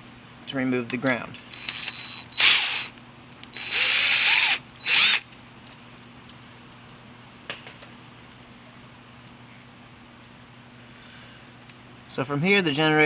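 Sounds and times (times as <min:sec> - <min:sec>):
cordless drill spinning: 0:01.5 - 0:05.2.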